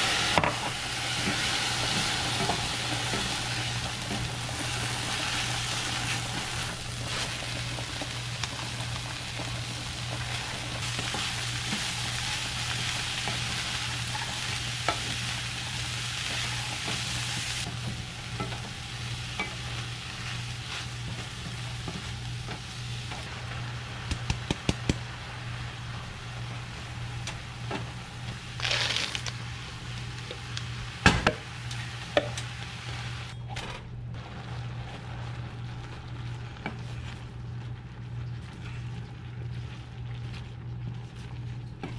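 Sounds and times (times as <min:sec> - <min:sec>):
vegetables sizzling in a skillet: 0:00.0 - 0:33.3, 0:34.2 - 0:37.4
wooden spatula scraping a pan: 0:28.6 - 0:29.3.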